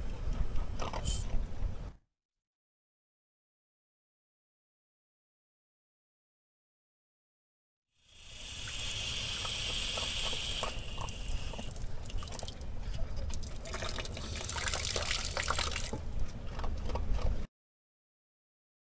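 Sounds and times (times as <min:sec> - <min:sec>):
water jetting onto concrete: 0:08.2 - 0:12.5, 0:13.5 - 0:15.9
water dripping and splashing: 0:08.6 - 0:16.0.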